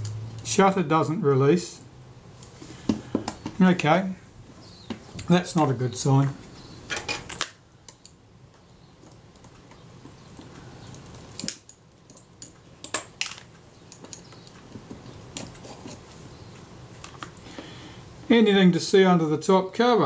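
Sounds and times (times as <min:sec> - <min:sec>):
light scraping: 0:15.4 - 0:16.2.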